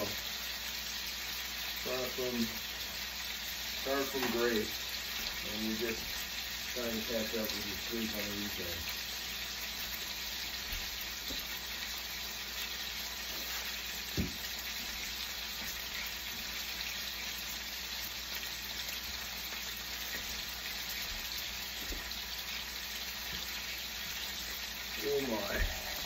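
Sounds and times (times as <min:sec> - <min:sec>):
steaks sizzling in oil: 0:00.0 - 0:26.0
knock: 0:14.2 - 0:14.4.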